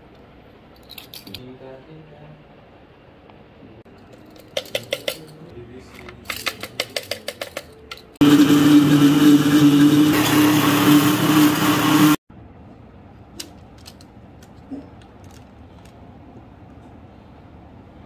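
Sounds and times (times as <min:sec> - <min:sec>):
blender motor running: 0:08.2 - 0:12.2.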